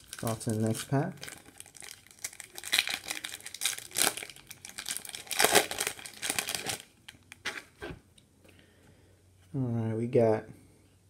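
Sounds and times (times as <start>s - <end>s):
foil wrapper tearing and crinkling: 0.0s - 7.8s.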